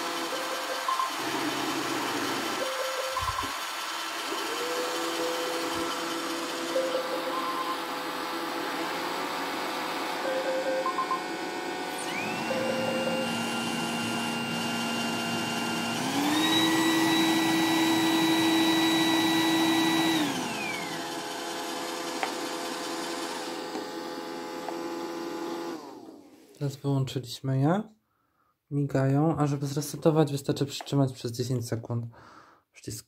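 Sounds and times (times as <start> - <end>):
motor whine: 0.0 - 26.2
robot vacuum machine hum: 0.0 - 26.3.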